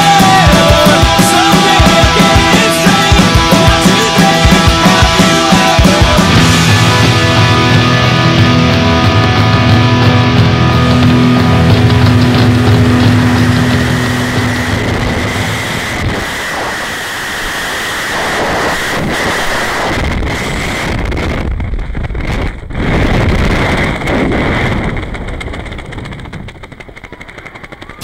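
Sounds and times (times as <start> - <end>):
turboprop engines whining: 0.0 - 28.0
wind on microphone: 10.9 - 28.0.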